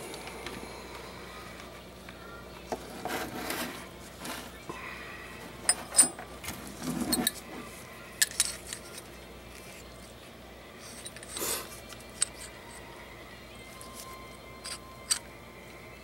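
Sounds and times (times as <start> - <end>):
metal parts rubbing: 5.6 - 9.8, 10.8 - 12.8, 13.7 - 15.3
metal rifle parts clicking: 8.2 - 9.1, 10.9 - 12.6, 14.6 - 15.3.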